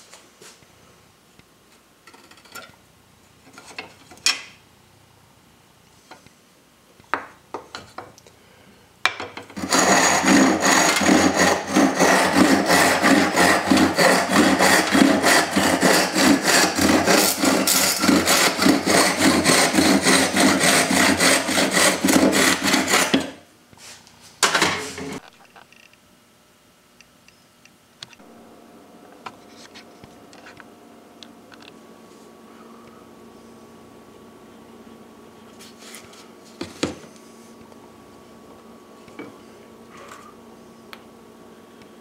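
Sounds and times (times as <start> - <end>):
hand saw cutting wood: 9.6 - 23.4.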